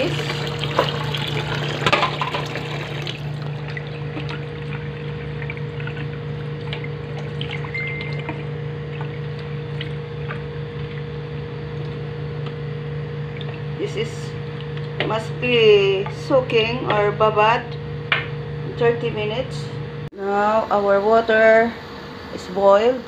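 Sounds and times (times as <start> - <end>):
tap water pouring into pot: 0.0 - 10.9
low hum: 0.0 - 22.9.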